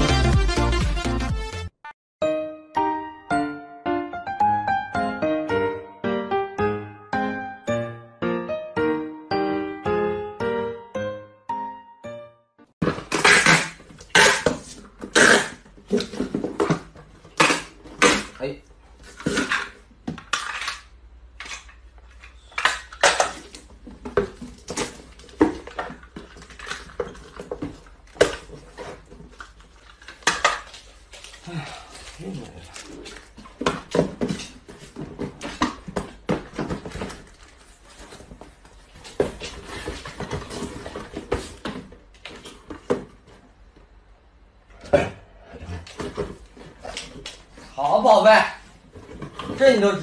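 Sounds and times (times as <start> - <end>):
cardboard boxes knocking and scraping: 12.8 - 18.0, 23.4 - 29.5, 33.0 - 43.5, 48.8 - 49.8
packing tape pulled off roll: 13.0 - 15.7.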